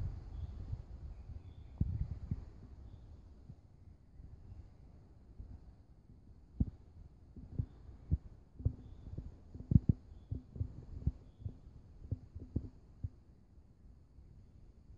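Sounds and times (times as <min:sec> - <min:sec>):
faint steady hum: 0:00.0 - 0:14.9
dull low thumps: 0:06.5 - 0:13.2.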